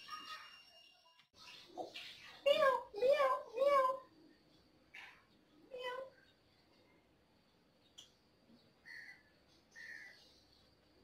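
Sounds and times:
faint toddler voice: 2.3s - 4.2s, 5.6s - 6.3s.

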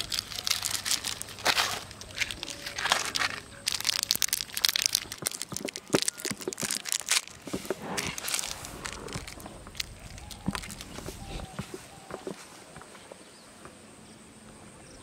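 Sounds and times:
plastic sachet crinkling: 0.0s - 11.5s.

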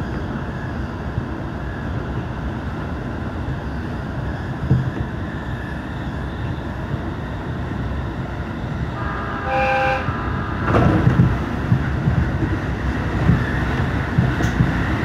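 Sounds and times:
train rumble from inside carriage: 0.0s - 15.0s
train horn: 9.0s - 11.0s.

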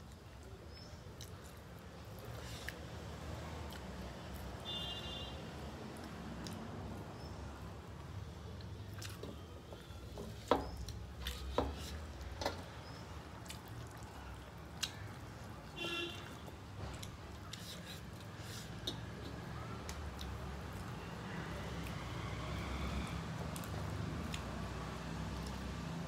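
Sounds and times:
chewing and wet mouth sounds: 0.0s - 4.8s, 5.6s - 26.0s
fingers mixing rice on metal plates: 9.0s - 13.7s, 14.7s - 21.0s.

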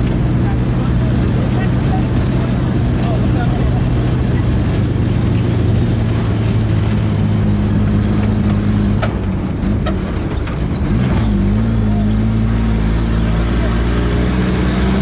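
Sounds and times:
vehicle engine running: 0.0s - 15.0s
metallic clanks and rattles: 4.4s - 11.6s.

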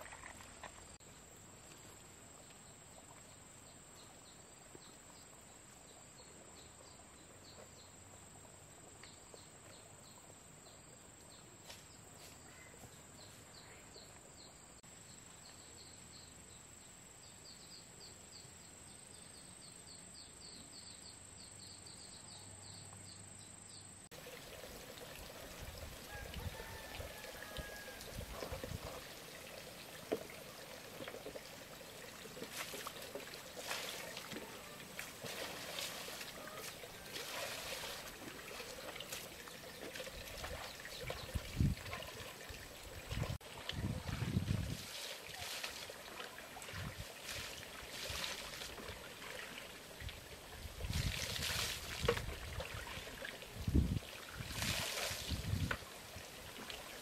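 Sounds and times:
water sounds: 24.1s - 57.0s.

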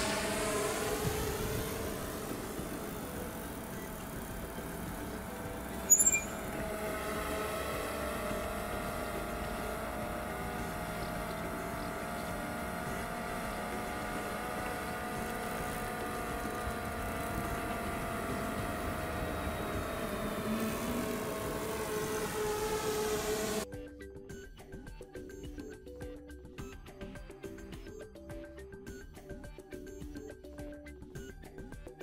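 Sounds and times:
drone propellers whining: 0.0s - 23.7s.

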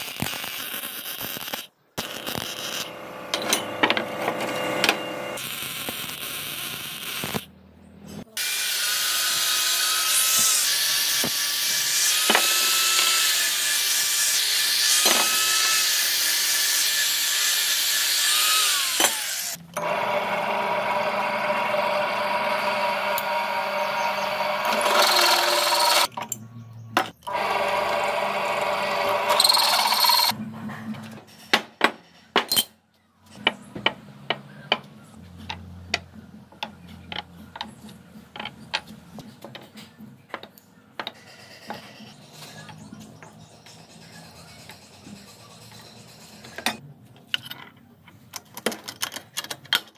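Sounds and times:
drill press drilling steel: 18.1s - 26.1s, 27.3s - 30.3s.

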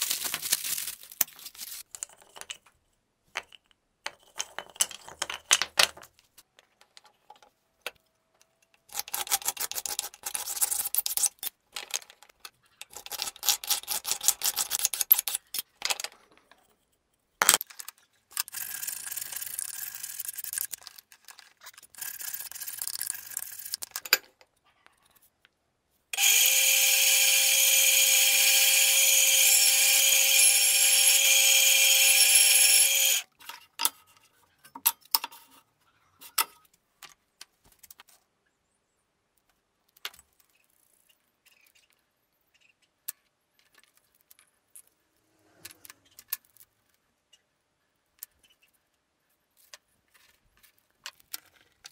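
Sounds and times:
bandsaw cutting wood: 26.2s - 33.3s.

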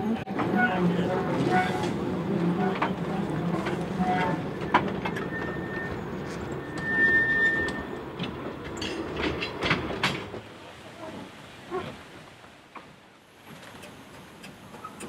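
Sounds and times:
railway carriages rumbling: 0.0s - 15.0s
wheels clicking over rails: 0.3s - 10.4s
wheel squeal: 3.9s - 8.0s.

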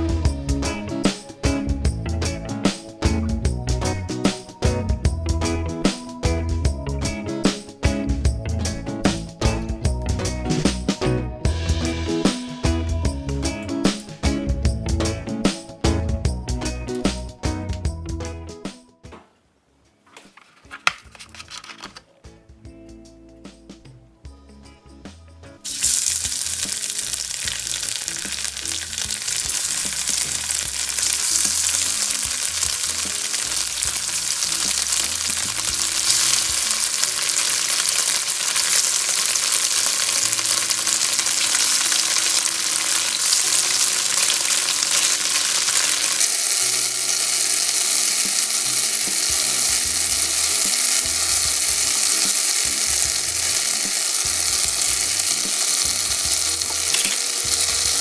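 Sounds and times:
tofu sizzling in oil: 25.6s - 58.0s.

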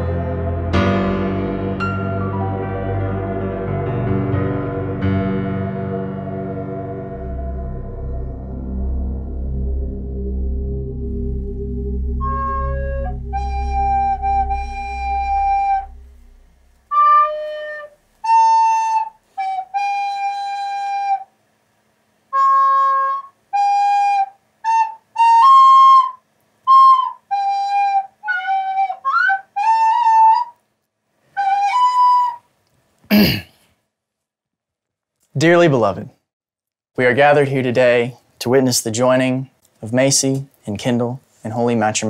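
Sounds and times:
low musical drone: 0.0s - 17.5s
solo melody of held notes: 0.0s - 21.2s.

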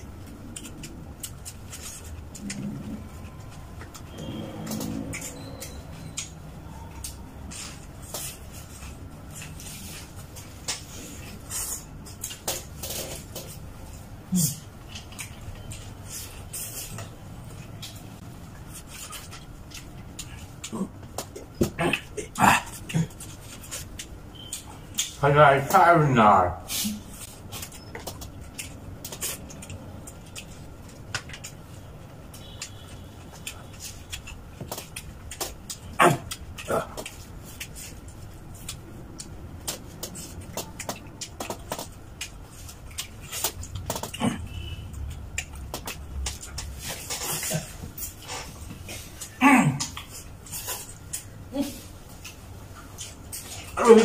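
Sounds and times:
low hum: 0.0s - 8.0s
people chewing: 0.0s - 25.7s, 26.7s - 54.0s.

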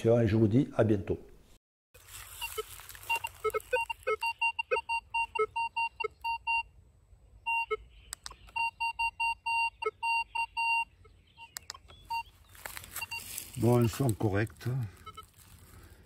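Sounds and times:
metal detector beeping: 2.4s - 6.7s, 7.5s - 15.4s.

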